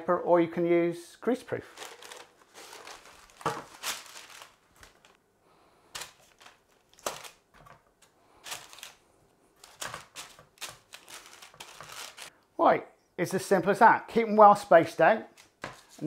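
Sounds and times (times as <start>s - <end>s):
baking parchment rustling: 1.6s - 5.2s, 5.9s - 12.3s.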